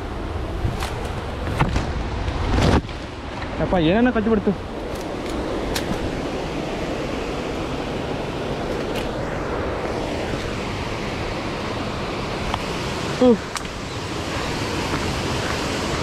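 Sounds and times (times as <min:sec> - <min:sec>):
waterfall rushing: 0:09.4 - 0:16.0.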